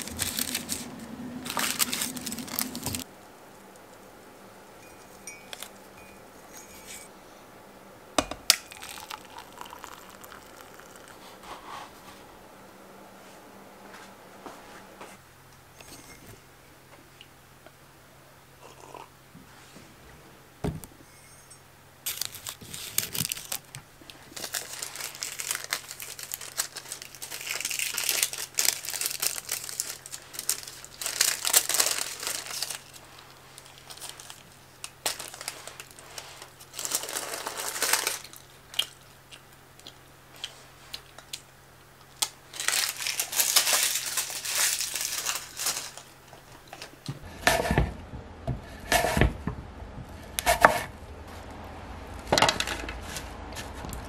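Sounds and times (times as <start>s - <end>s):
baking paper crinkling: 0.0s - 3.1s, 8.7s - 12.0s, 22.0s - 39.1s, 42.0s - 47.0s.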